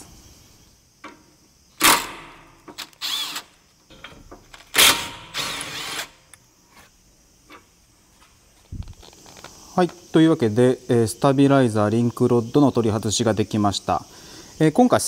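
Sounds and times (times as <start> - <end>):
power tool bursts: 1.8 - 3.5, 4.7 - 6.2.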